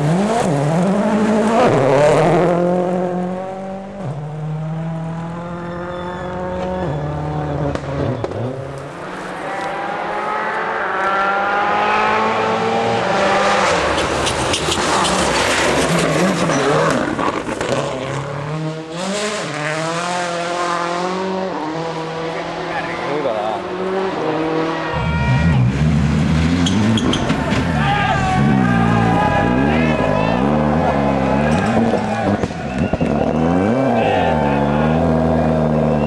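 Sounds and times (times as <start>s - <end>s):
car rushing past: 0.0s - 36.0s
rally car engines revving: 0.0s - 36.0s.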